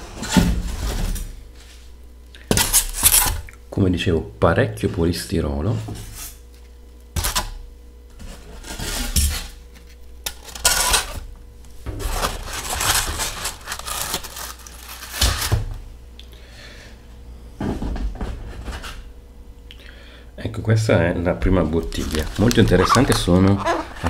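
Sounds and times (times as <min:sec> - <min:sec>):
foam sheets scraping cardboard: 0:08.2 - 0:09.5, 0:12.0 - 0:15.4.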